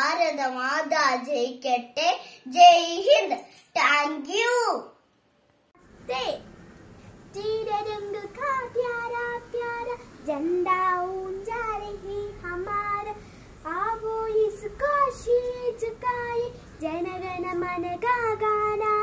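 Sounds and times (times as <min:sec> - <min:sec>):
girl singing unaccompanied: 0:07.2 - 0:19.0.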